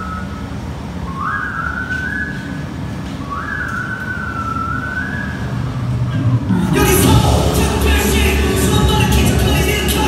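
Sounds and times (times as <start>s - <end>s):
workout music with whistle-like melody: 1.0s - 5.7s
low rumble: 5.7s - 10.0s.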